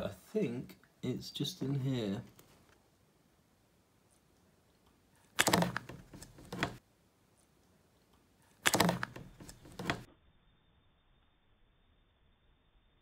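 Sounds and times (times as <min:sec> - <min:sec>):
plastic cup clattering: 0:05.4 - 0:06.8, 0:08.6 - 0:10.1.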